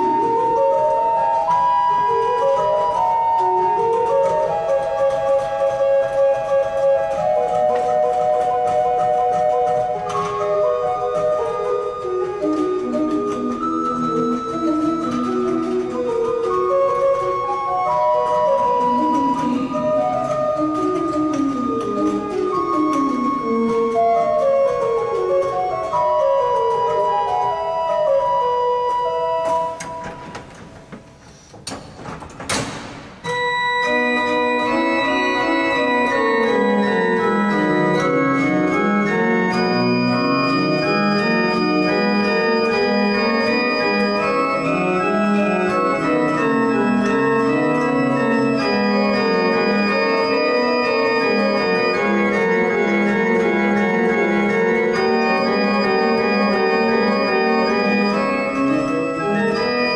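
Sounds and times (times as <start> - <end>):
pipe organ playing: 0.0 - 31.3, 32.1 - 59.9
sharp knocks: 29.8 - 33.3.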